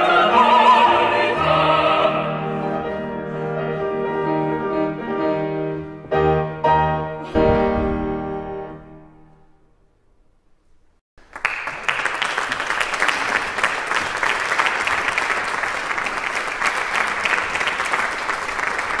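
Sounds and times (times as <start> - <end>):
audience applause: 11.2 - 19.0.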